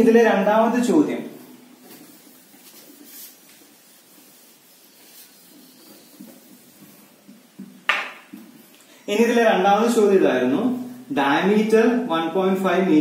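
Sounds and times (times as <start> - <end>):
eraser rubbing on whiteboard: 1.4 - 7.7.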